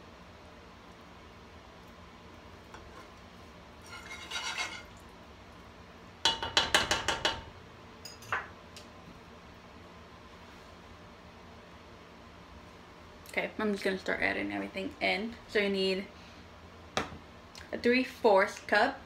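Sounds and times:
wire whisk scraping a saucepan: 2.7 - 3.2, 3.8 - 5.0
whisk clinking against pan: 3.8 - 4.9.

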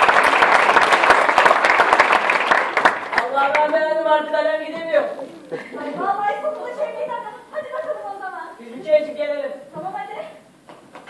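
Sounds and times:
audience applause: 0.0 - 3.9.

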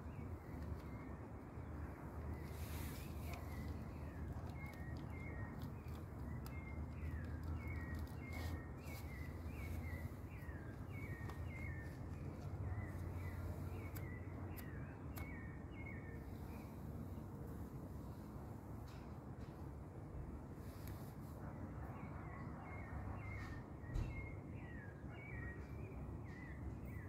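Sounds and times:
low steady hum: 0.0 - 19.5.

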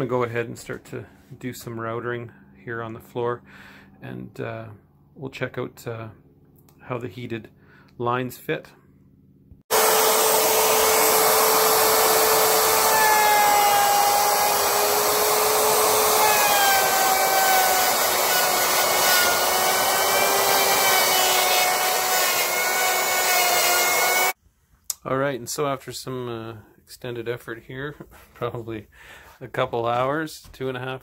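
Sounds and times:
router bit rasping wood: 9.7 - 24.4
router motor whine: 9.7 - 24.4.

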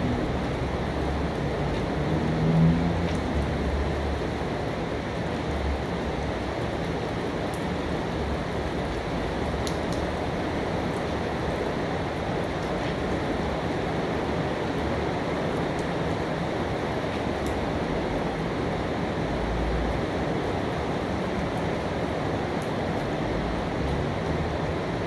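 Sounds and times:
steady rain: 0.0 - 25.0
single raindrops ticking: 8.6 - 10.3.

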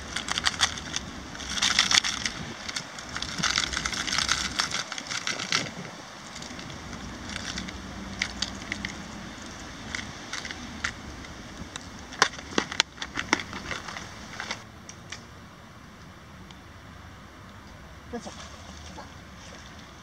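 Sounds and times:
fishing lures clicking and rattling: 0.0 - 14.6
low outdoor rumble: 0.0 - 20.0.

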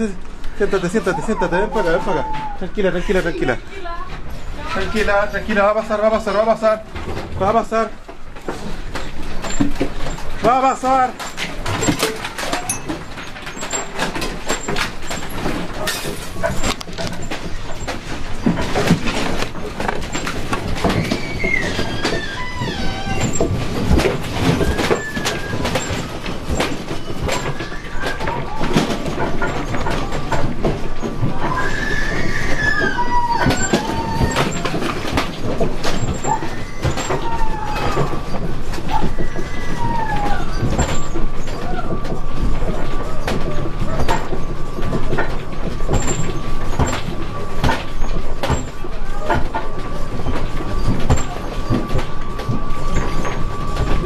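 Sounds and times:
loose objects rattling and clattering: 0.0 - 54.0
high wavering cries: 0.8 - 3.8, 12.2 - 13.9, 20.1 - 23.4, 31.3 - 35.1, 35.8 - 42.2.

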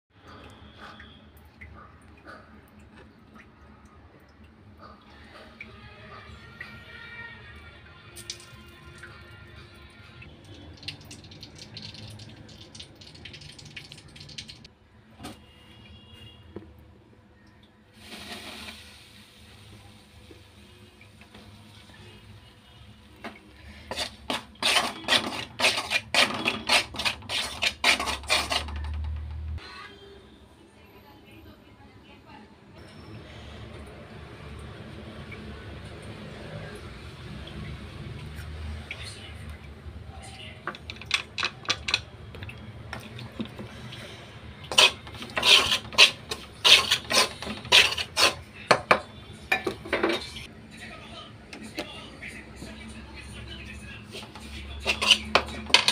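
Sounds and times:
utensil scraping a steel pan: 23.7 - 29.1, 44.7 - 48.6, 54.1 - 55.9.

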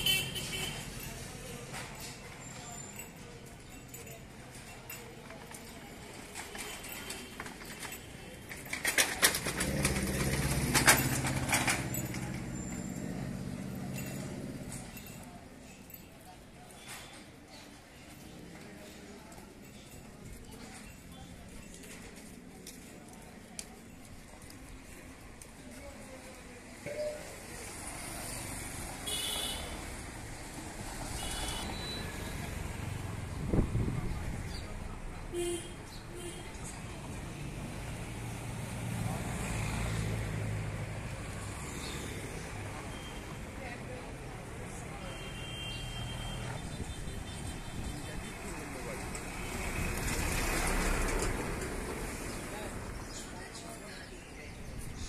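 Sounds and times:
vehicle engine running close: 9.2 - 15.0
van driving past: 9.4 - 14.8.

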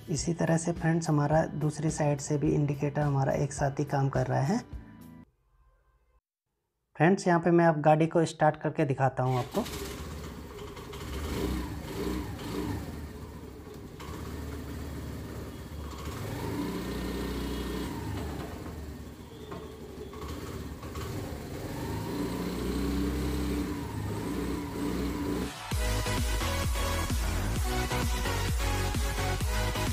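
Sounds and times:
scooter engine idling and revving: 9.3 - 29.9.

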